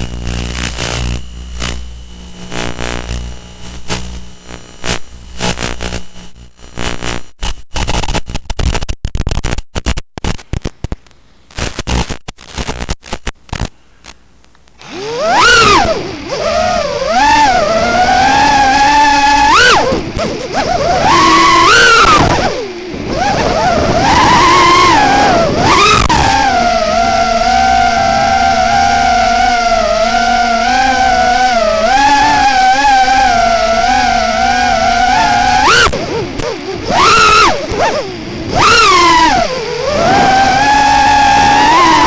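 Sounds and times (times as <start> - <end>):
crackling static: 0.0 - 42.0
quadcopter motors whining: 14.8 - 42.0.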